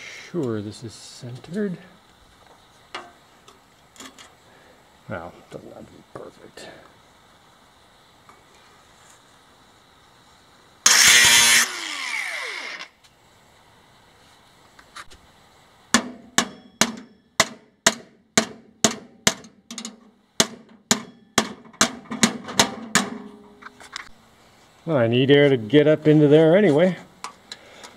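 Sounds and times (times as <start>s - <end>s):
angle grinder spinning down: 10.9s - 13.0s
hammer beating on steel lid: 16.0s - 23.5s.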